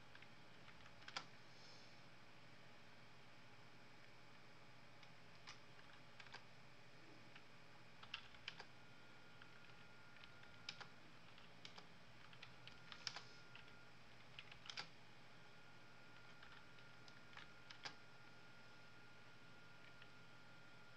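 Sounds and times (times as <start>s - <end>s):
typing on computer keyboard: 0.1s - 1.3s, 5.4s - 6.4s, 8.0s - 8.7s, 9.3s - 14.9s, 16.2s - 18.0s.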